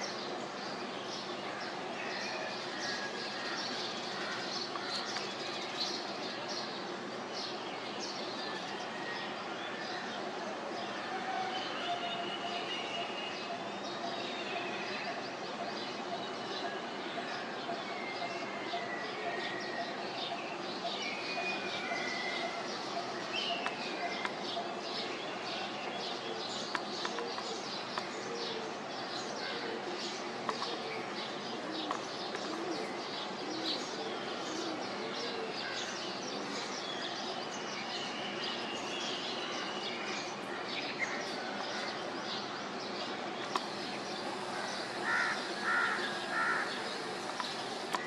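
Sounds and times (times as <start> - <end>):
background noise: 0.0 - 48.0
birds chirping: 20.9 - 48.0
loud bird calls: 29.2 - 48.0.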